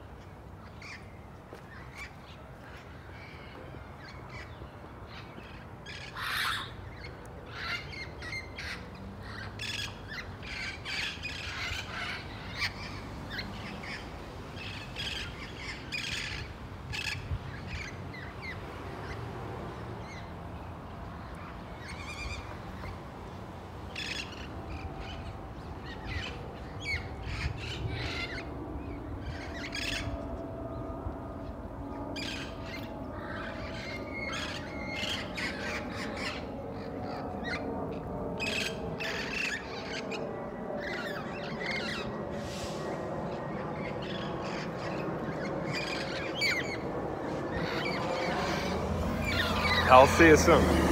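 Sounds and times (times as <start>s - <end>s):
parrots squawking: 5.4s - 14.0s, 23.9s - 30.2s, 32.2s - 40.2s, 40.8s - 42.2s, 43.3s - 50.7s.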